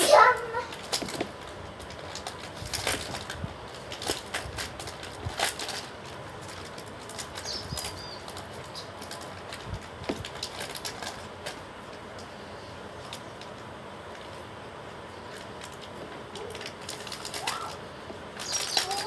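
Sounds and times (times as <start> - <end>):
plastic packets crinkling: 0.1 - 12.0, 15.3 - 17.8, 18.4 - 19.0.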